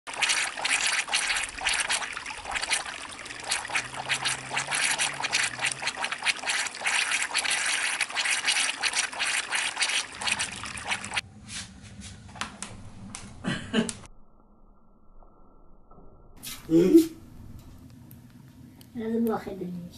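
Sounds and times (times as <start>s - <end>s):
water trickling over grass: 0.1s - 11.2s.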